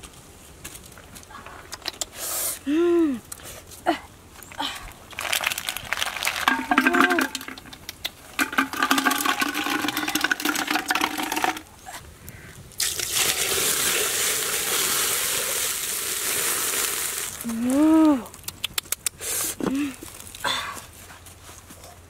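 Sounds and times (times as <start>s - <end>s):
person crying out: 2.7s - 3.2s, 17.4s - 18.3s
snail shells clattering: 4.4s - 11.6s
water pouring into pot: 6.3s - 7.8s, 8.4s - 11.6s, 12.8s - 17.5s.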